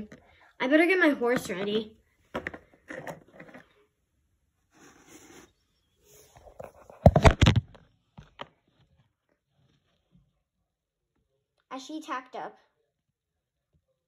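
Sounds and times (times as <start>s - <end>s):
faint scraping and rustling: 4.6s - 7.1s, 8.0s - 10.6s.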